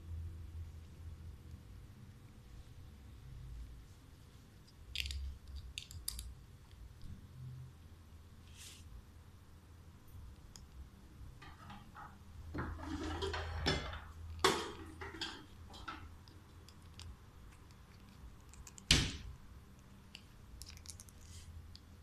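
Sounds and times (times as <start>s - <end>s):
plastic cap clicking and scraping: 14.3s - 18.9s.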